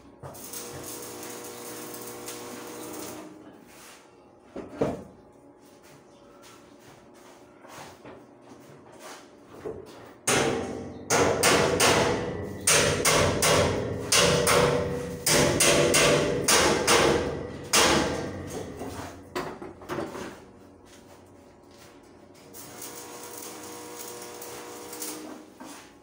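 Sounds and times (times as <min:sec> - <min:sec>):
hammer striking steel staircase: 0:10.3 - 0:18.9.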